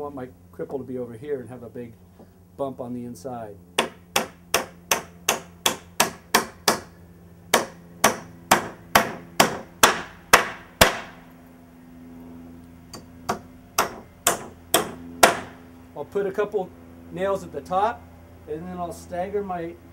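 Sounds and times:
hammer driving nails into wood: 3.8s - 11.2s, 12.9s - 15.6s.

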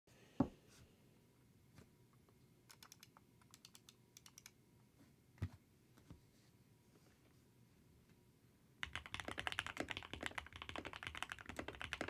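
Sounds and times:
mechanical keyboard typing: 2.7s - 4.6s, 8.8s - 12.0s.

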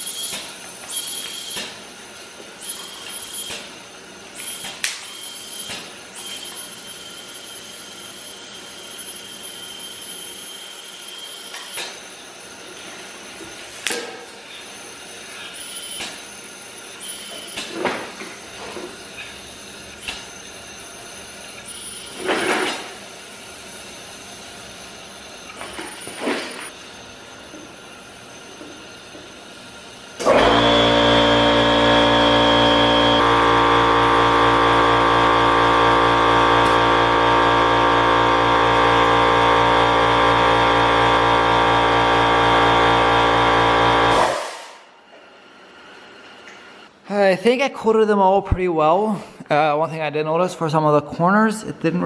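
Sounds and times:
high whine: 30.2s - 44.9s.

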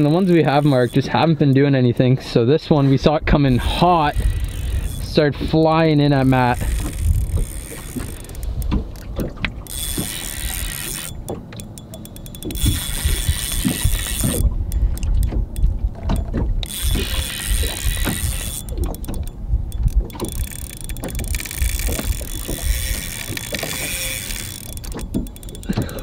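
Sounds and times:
fishing reel clicking: 0.0s - 2.1s, 3.4s - 26.0s
wind rumble on microphone: 0.9s - 11.1s, 12.4s - 26.0s.

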